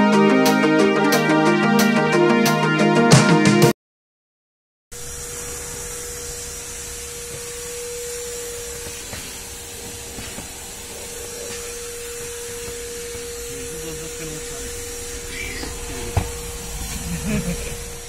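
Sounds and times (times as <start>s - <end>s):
vacuum cleaner running: 4.9s - 18.0s.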